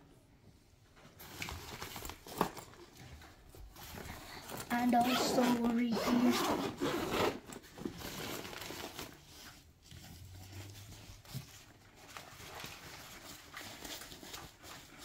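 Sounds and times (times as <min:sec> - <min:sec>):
fabric lining rustling: 0:03.6 - 0:15.0.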